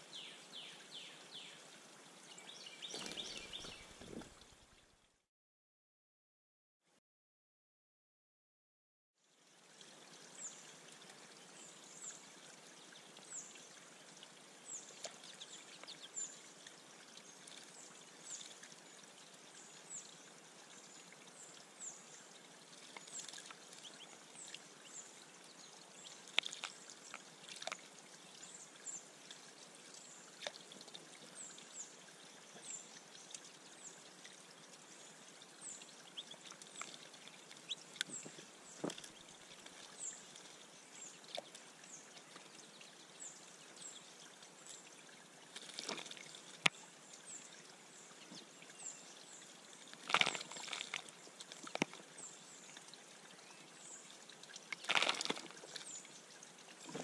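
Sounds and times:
water trickling over rocks: 0.0s - 5.3s, 9.2s - 57.0s
bird chirping: 2.3s - 4.2s
birds splashing in water: 2.4s - 4.6s, 22.4s - 25.1s, 26.0s - 29.5s, 45.2s - 47.0s, 49.7s - 53.0s, 53.6s - 57.0s.

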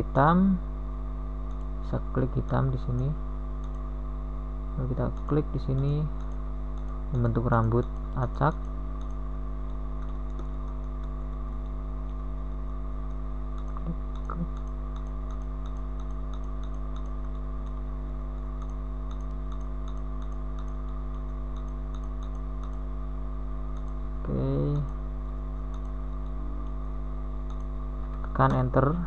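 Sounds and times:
electrical hum: 0.0s - 29.0s
computer mouse clicks: 1.4s - 3.9s, 5.0s - 22.9s, 23.7s - 25.0s, 25.6s - 26.8s, 27.4s - 28.8s.

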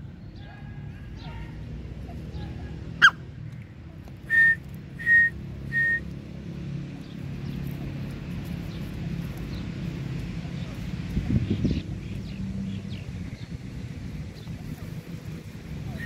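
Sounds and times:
bird calling: 3.0s - 3.2s, 4.3s - 6.0s, 15.8s - 16.0s.

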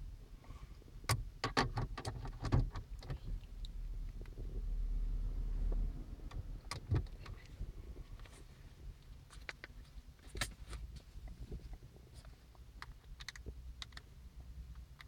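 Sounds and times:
low rumble: 3.4s - 9.0s.

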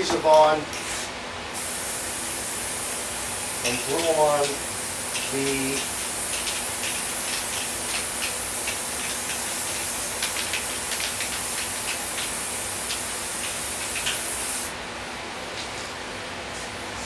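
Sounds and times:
aerosol can hissing: 1.6s - 14.7s.

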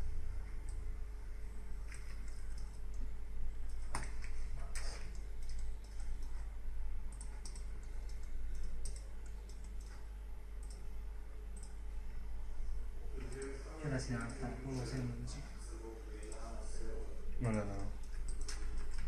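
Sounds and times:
steady low hum: 0.0s - 19.0s
mouse and keyboard clicks: 7.1s - 10.0s, 17.5s - 19.0s.

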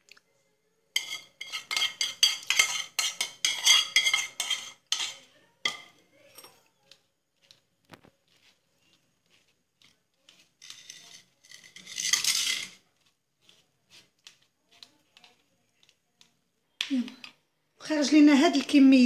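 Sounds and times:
metal spoon clanking in saucepan: 1.0s - 6.7s, 10.6s - 12.8s.

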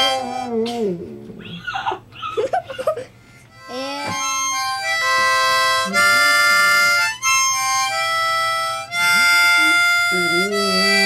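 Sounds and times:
long held instrument chords: 3.5s - 11.0s.

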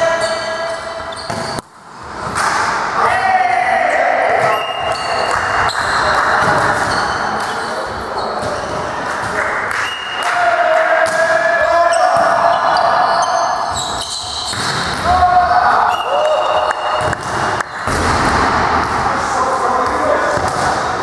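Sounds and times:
short high shoe squeaks: 0.1s - 1.6s, 11.9s - 14.6s
ball striking floor: 14.5s - 15.1s, 17.0s - 19.0s, 19.8s - 20.8s.

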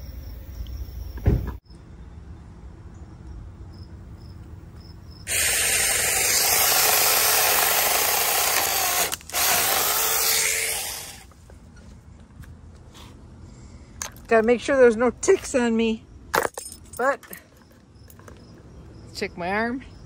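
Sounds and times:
thump: 1.2s - 1.6s
mini chainsaw cutting branches: 5.3s - 11.3s.

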